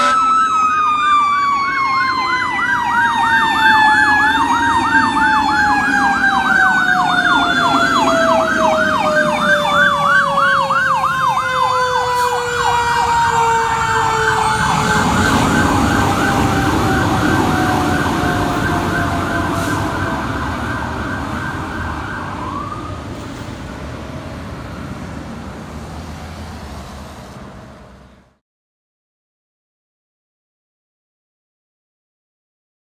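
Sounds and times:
fast yelping siren: 0.0 - 23.1
siren winding down: 0.0 - 25.1
truck engine rumble: 0.2 - 28.4.

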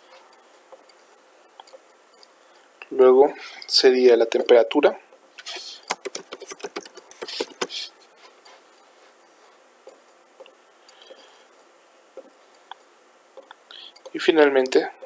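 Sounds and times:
typing on computer keyboard: 5.9 - 7.7.

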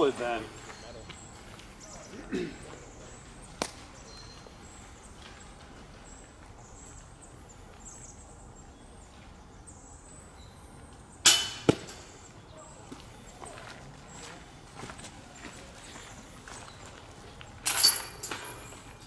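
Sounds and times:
faint bird chirps: 0.6 - 5.5
sharp metallic clank: 11.2 - 12.0
disc hitting metal chain basket: 17.6 - 18.8.

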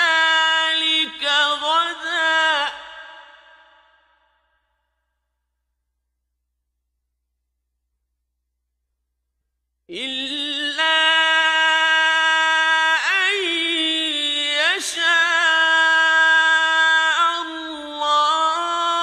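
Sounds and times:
man chanting melodically: 0.0 - 3.4, 9.9 - 19.0.

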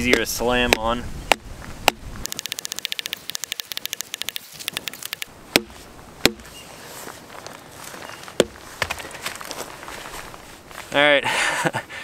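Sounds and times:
high dry clicks: 2.2 - 5.3.

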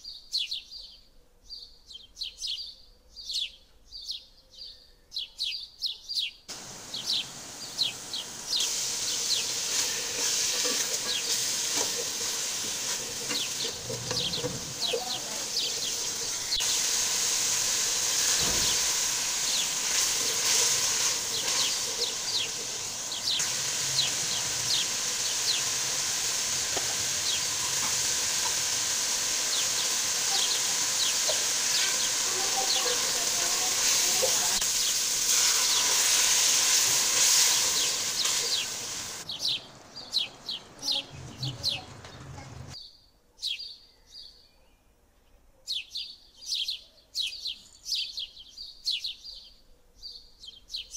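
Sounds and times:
small birds chirping: 0.0 - 36.5, 37.2 - 44.9, 45.7 - 50.9
spices frying in oil: 6.5 - 39.4.

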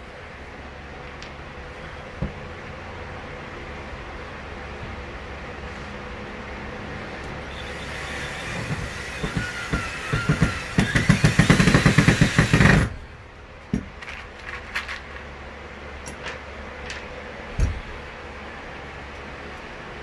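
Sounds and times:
cordless drill driving screw: 7.5 - 12.9.

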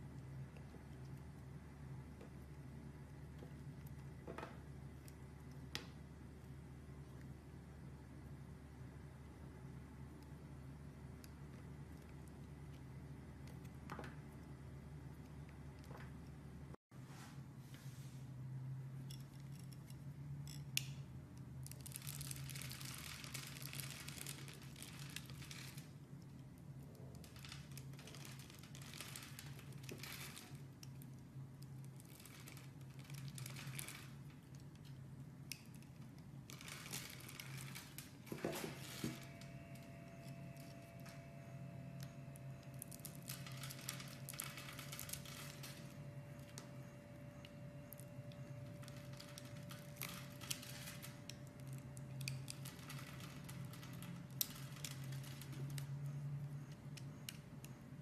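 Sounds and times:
steady low hum: 0.0 - 58.0
faint steady tone: 38.4 - 58.0.

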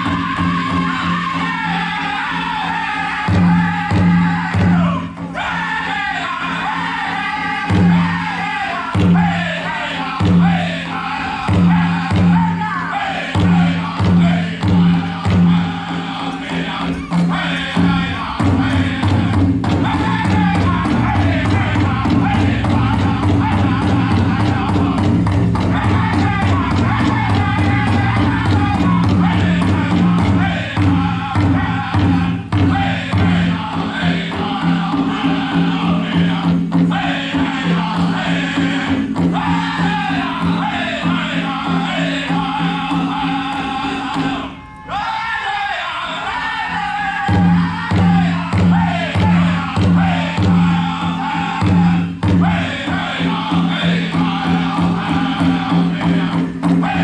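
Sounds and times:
large drum beating: 0.0 - 44.4, 47.2 - 57.0
group of singers: 0.0 - 57.0
voices chanting together: 0.0 - 57.0.

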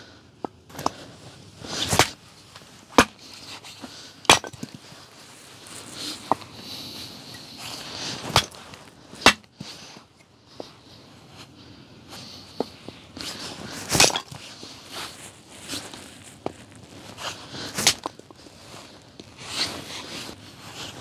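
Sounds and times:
axe chopping firewood: 0.4 - 1.0, 1.7 - 2.2, 2.9 - 3.6, 4.2 - 4.9, 8.2 - 9.8, 13.9 - 14.4, 17.6 - 18.2.

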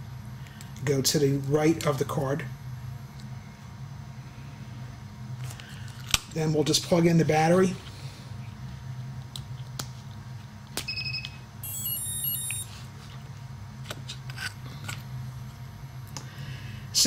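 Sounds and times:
high two-note beep: 10.9 - 12.7
stepped electronic tones: 10.9 - 12.7.

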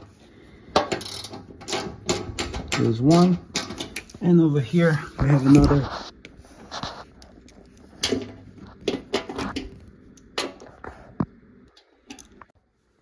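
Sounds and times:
clicks and knocks of bolts: 0.8 - 4.2.

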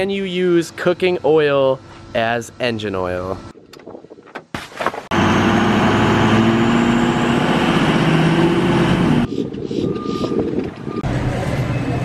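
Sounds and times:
road noise: 5.0 - 12.0
truck engine drone: 5.1 - 12.0.

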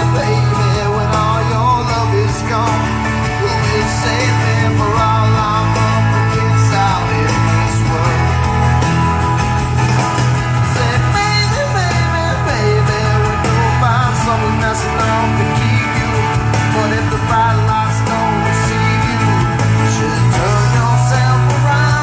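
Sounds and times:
man singing into a microphone: 0.0 - 8.7, 10.6 - 22.0
rock backing track: 0.0 - 22.0.

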